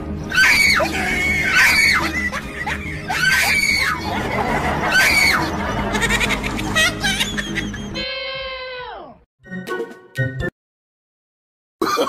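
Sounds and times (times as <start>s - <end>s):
background music: 0.0s - 10.5s
high-pitched screams: 0.3s - 2.2s, 3.1s - 4.0s, 4.8s - 5.5s.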